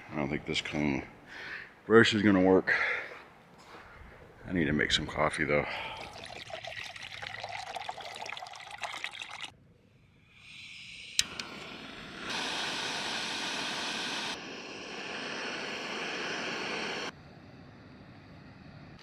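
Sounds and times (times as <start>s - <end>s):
gas hissing: 10.2s - 17.2s
stove burner rushing: 10.7s - 17.1s
stove igniter click: 11.1s - 11.6s.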